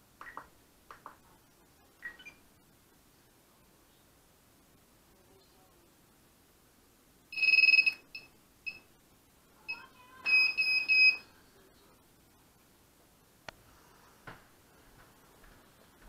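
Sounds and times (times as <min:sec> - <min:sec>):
electronic buzzer beeps: 0:07.3 - 0:08.8, 0:09.7 - 0:11.2.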